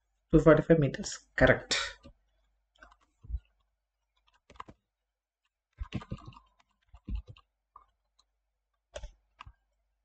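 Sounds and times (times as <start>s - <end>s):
computer mouse clicks: 2.8s - 4.8s, 5.8s - 8.3s, 8.9s - 9.6s.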